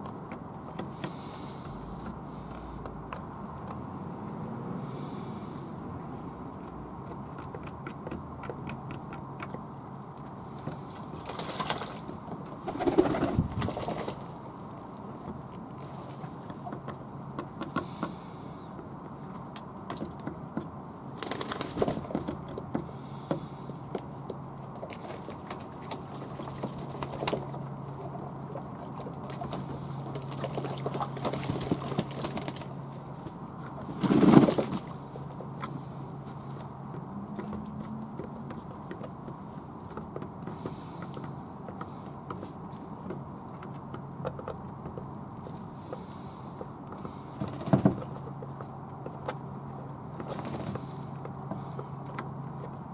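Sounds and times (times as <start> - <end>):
wings flapping and water splashing: 10.7 - 14.3, 21.1 - 22.2, 24.7 - 33.0, 33.7 - 35.0, 47.0 - 48.1, 50.2 - 51.0.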